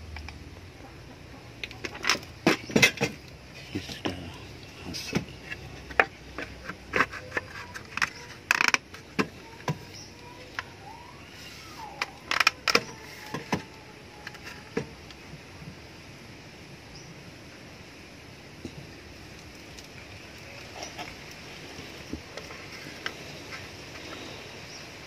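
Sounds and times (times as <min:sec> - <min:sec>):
wooden parts clicking and knocking: 0:05.0 - 0:10.7, 0:11.8 - 0:14.9.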